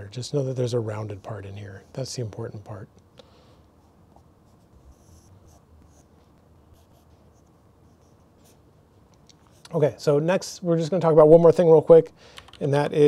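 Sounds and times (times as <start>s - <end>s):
pencil scratching on paper: 4.1s - 8.6s.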